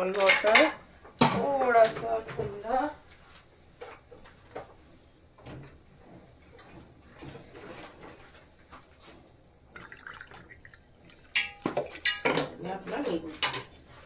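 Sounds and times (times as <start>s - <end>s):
water pouring into glass: 9.7s - 12.0s
glass clinking: 9.8s - 12.5s.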